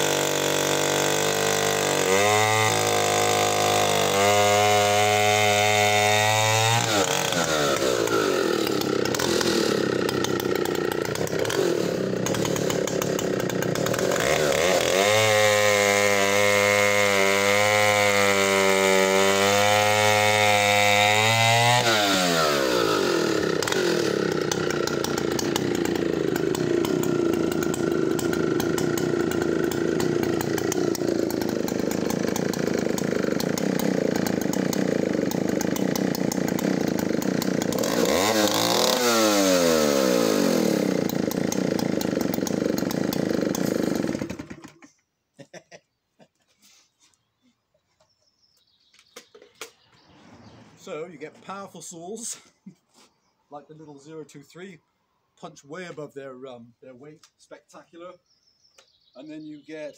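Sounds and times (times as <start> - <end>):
chainsaw cutting log: 0.0 - 44.9.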